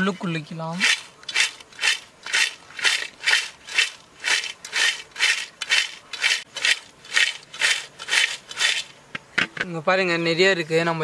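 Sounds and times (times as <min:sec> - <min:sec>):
chips rattling in metal pot: 0:00.8 - 0:08.8.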